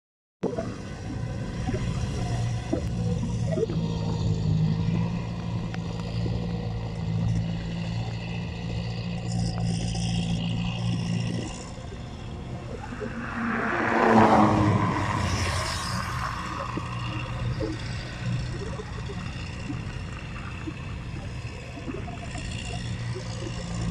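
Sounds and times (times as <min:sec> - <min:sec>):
loud rush of noise: 0:12.4 - 0:18.2.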